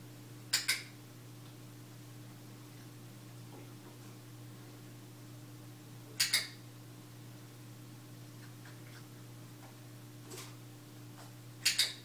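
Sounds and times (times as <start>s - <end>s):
low appliance hum: 0.0s - 12.0s
sharp click: 0.5s - 0.9s, 6.2s - 6.6s, 11.6s - 12.0s.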